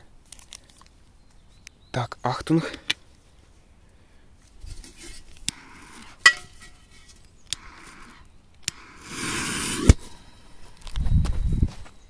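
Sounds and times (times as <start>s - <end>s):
fuse hissing: 7.5s - 10.2s
lighter clicking: 8.6s - 10.0s.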